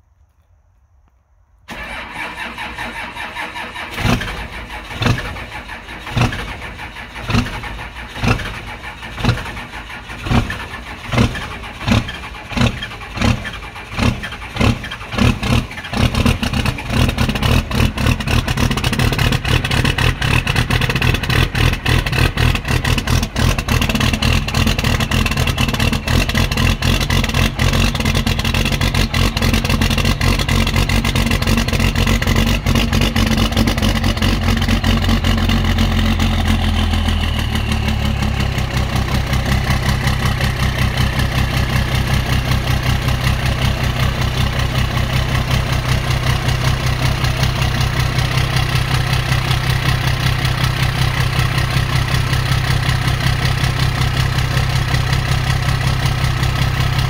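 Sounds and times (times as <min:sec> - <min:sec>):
starter cranking: 0:01.7 - 0:37.3
diesel engine firing and running: 0:01.7 - 0:57.0.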